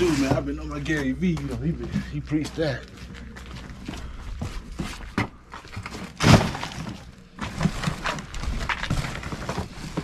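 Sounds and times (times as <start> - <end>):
junk crashing: 5.2 - 10.0.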